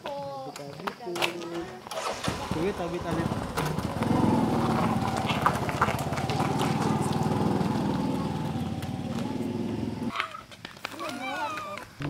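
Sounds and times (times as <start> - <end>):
motorcycle engine pulling away: 1.9 - 10.1.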